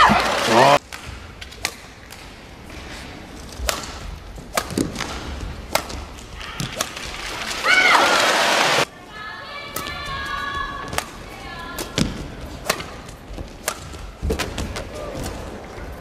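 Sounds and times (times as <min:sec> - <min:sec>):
rackets smacking shuttlecock: 0:00.8 - 0:02.4, 0:03.4 - 0:07.2, 0:09.7 - 0:15.7.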